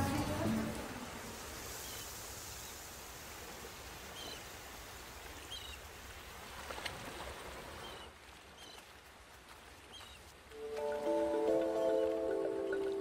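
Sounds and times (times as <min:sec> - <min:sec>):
soft surf hiss: 0:00.0 - 0:08.4.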